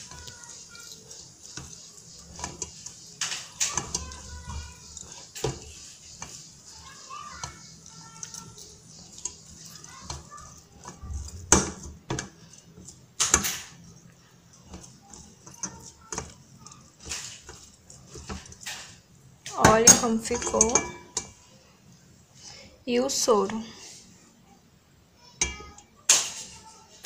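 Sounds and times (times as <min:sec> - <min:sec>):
metal spoon scraping plastic sieve: 0:00.0 - 0:21.4.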